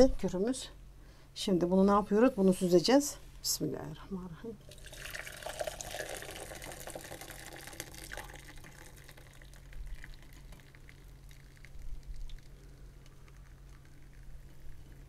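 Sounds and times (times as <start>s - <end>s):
liquid trickling into jug: 4.6s - 15.0s.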